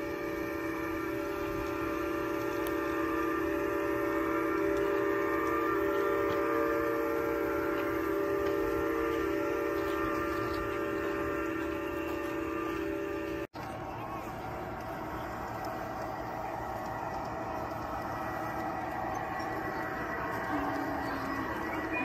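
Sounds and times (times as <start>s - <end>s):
steam locomotive chime whistle: 0.0s - 22.0s.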